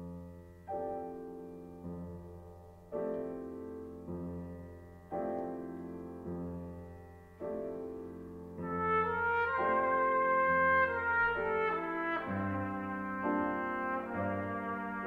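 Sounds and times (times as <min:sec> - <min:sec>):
piano chords: 0:00.0 - 0:15.0
brass instrument long notes: 0:08.6 - 0:15.0.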